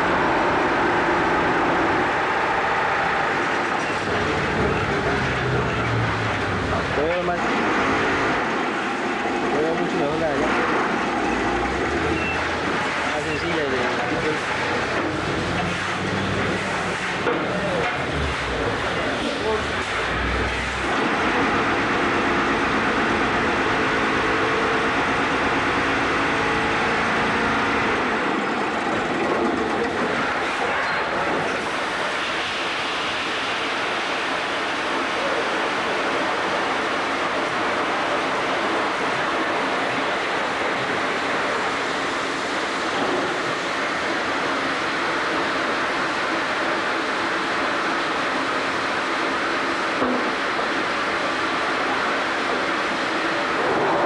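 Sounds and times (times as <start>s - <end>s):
machine rattling and clattering: 3.4s - 26.0s, 27.1s - 32.5s.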